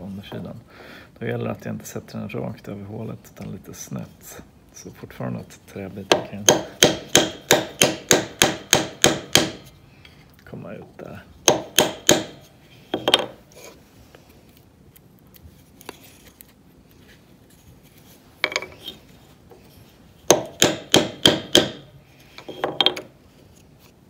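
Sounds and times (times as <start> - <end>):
wooden knocks: 12.9 - 13.4, 20.3 - 21.8, 22.4 - 23.1.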